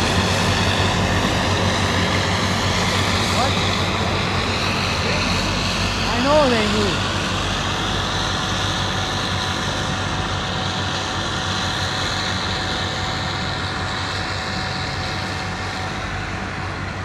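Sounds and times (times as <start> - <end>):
forage harvester droning: 0.0 - 17.0.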